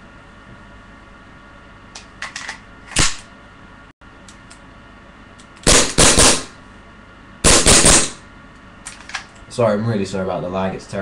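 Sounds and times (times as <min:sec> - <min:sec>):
airsoft pistol shots: 0:05.6 - 0:06.6, 0:07.4 - 0:08.2.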